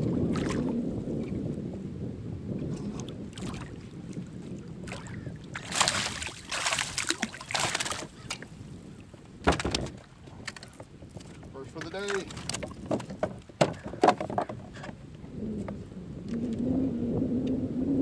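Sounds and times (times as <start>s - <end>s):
water splashing: 4.8s - 8.5s
kayak handling noise: 5.0s - 16.6s.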